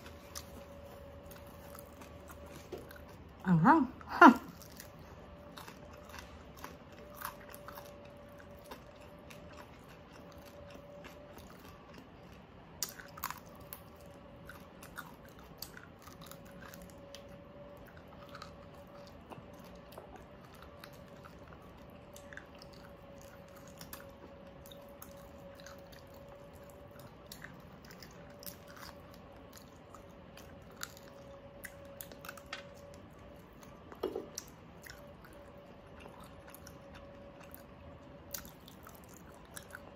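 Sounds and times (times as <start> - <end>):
chewing crispy food: 0.0 - 39.9
faint steady hum: 0.0 - 39.9.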